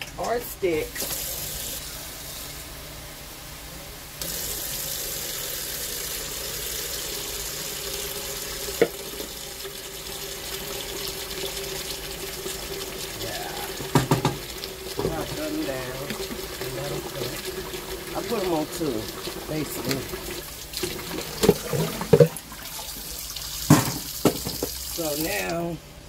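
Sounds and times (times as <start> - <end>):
tap water running: 0.0 - 3.0, 4.2 - 25.8
knocks: 13.8 - 14.4, 23.7 - 24.8.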